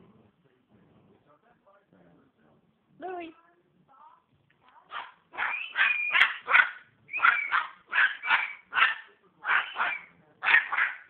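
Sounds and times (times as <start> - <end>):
dog barking: 4.9 - 11.0.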